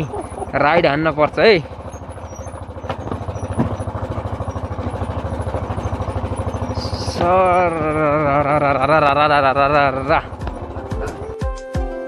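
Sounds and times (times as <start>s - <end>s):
motorcycle engine pulsing: 0.0s - 11.5s
sharp knocks: 2.7s - 7.6s.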